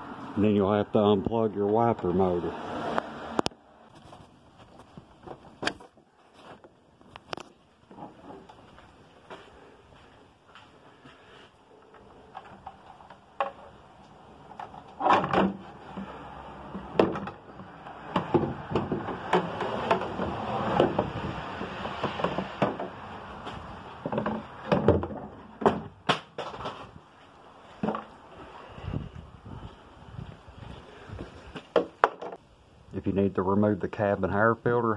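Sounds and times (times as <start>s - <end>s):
plastic part knocking and scraping: 14.6s - 26.8s.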